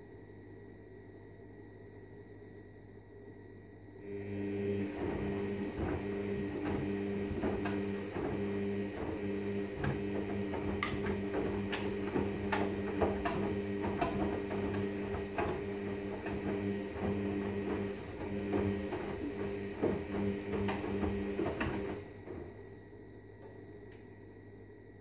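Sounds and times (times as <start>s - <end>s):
washing machine motor humming: 4.0s - 24.0s
water sloshing in a drum: 4.9s - 22.0s.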